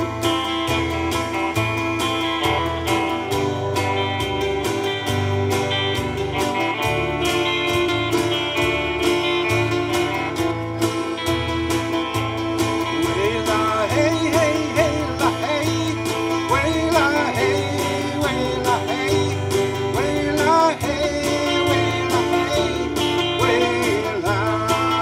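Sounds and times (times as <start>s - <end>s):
bass line: 0.0s - 25.0s
keyboard: 0.0s - 25.0s
strummed acoustic guitar: 0.0s - 25.0s
man singing: 12.8s - 25.0s.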